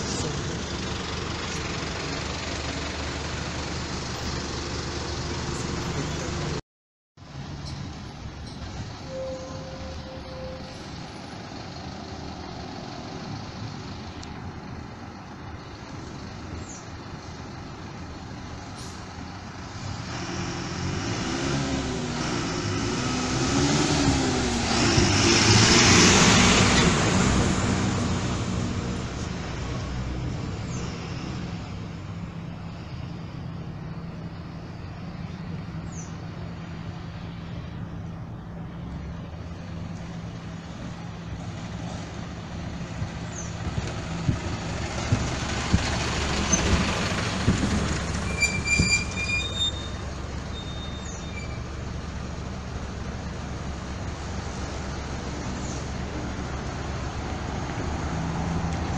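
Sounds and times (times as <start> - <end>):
bus driving past: 0.0 - 6.6, 7.2 - 58.9
low engine rumble: 0.0 - 6.6, 26.2 - 58.9
brakes squealing: 7.5 - 14.5, 15.2 - 58.9.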